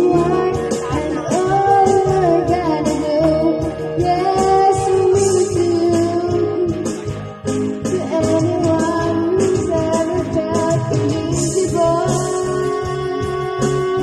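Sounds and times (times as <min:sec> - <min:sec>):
song with singer over beat: 0:00.0 - 0:14.0.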